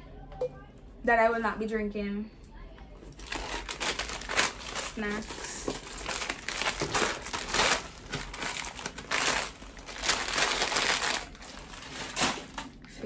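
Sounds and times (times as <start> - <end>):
plastic snack packets crinkling: 3.0 - 13.0.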